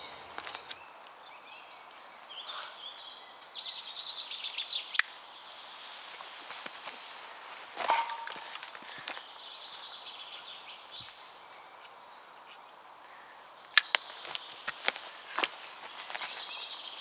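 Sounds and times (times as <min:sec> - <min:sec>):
footsteps on forest floor: 0:00.0 - 0:00.8, 0:05.8 - 0:09.3, 0:14.0 - 0:17.0
birds chirping: 0:00.0 - 0:17.0
twigs snapping: 0:00.3 - 0:00.8, 0:04.5 - 0:05.2, 0:13.6 - 0:16.6.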